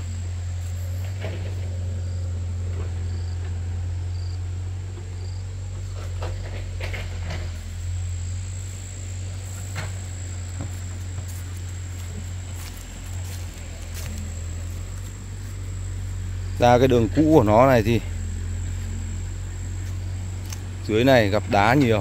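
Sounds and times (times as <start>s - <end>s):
low rumble: 0.0s - 22.0s.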